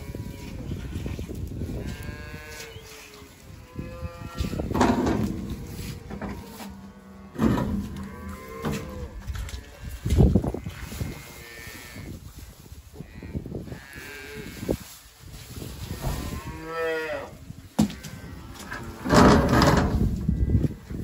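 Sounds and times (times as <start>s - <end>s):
cattle mooing: 1.8s - 12.0s.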